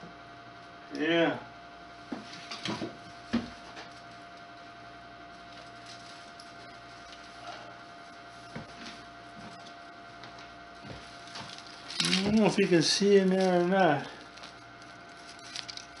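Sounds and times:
faint room hum: 0.0s - 16.0s.

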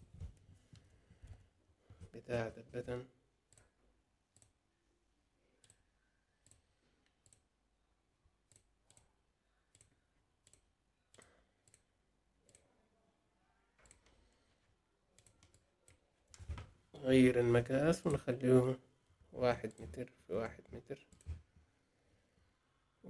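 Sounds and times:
computer mouse clicks: 3.5s - 4.6s, 5.6s - 7.5s, 8.4s - 12.7s, 13.8s - 14.4s, 15.1s - 16.5s.

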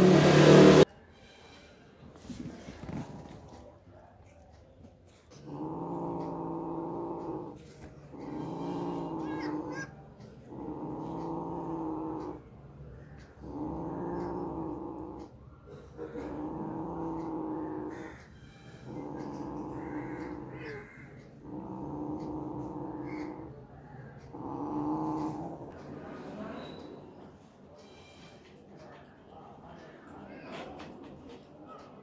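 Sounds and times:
cat growling: 2.5s - 3.8s, 5.3s - 26.9s.

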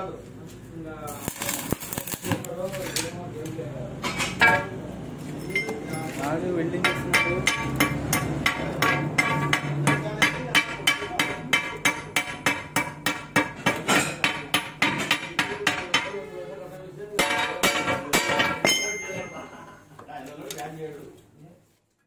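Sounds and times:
hammer ringing on steel: 6.8s - 16.2s, 17.2s - 19.5s.

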